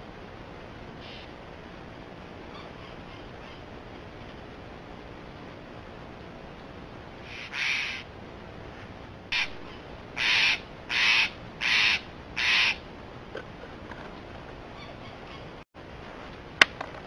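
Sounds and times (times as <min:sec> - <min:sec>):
bird cawing: 0:07.2 - 0:08.1, 0:09.3 - 0:12.8.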